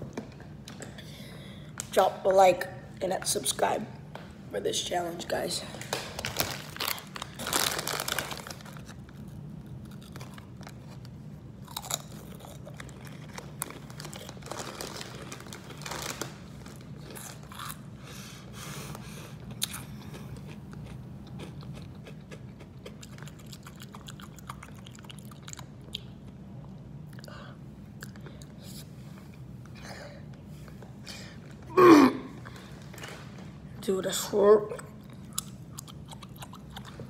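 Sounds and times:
crunching snack chips: 5.9 - 17.8
person chewing: 9.7 - 14.7, 17.0 - 17.9, 18.9 - 27.4, 34.8 - 37.0.

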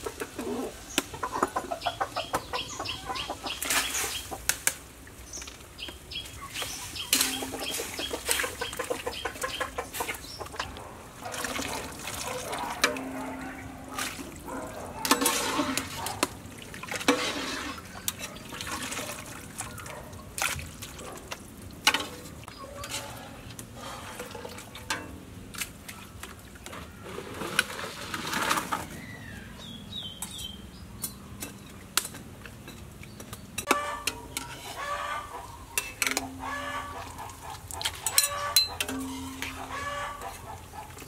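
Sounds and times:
chickens clucking: 0.0 - 4.6, 5.3 - 20.4, 21.8 - 25.1, 32.5 - 41.0
water splashing: 6.3 - 29.0
utensils and bowls clinking: 6.6 - 20.0, 21.9 - 25.3, 31.3 - 35.0, 35.7 - 41.0.

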